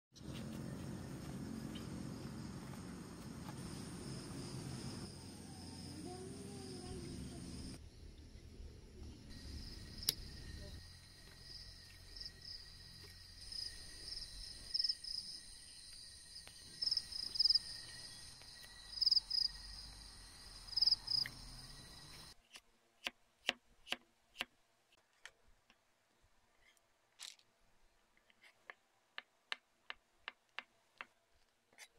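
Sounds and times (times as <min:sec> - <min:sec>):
crickets trilling: 0:01.0 - 0:08.1, 0:09.0 - 0:22.3.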